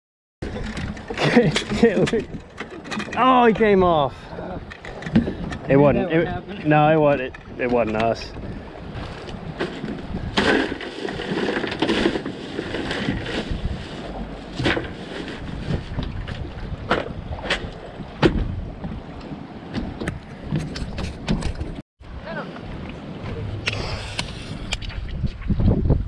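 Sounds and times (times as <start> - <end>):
water lapping against boat: 0.4 - 25.7
sharp knocks and clunks: 4.7 - 5.7, 15.9 - 19.0, 19.7 - 21.8
wind on microphone: 7.3 - 26.0.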